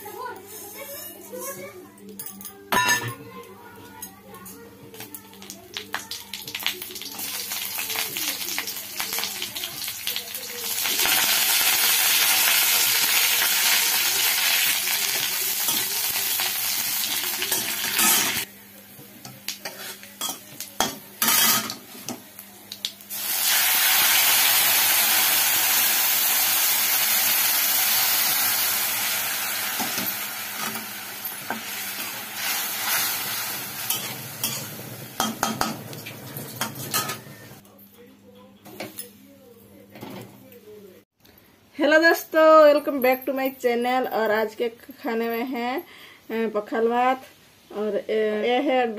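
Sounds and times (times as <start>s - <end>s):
hot oil sizzling: 5.4s - 18.5s, 22.7s - 37.6s.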